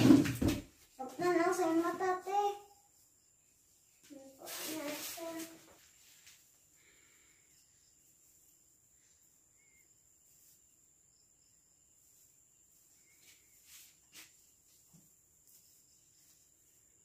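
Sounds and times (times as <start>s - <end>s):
plastic branches rustling: 4.3s - 6.4s.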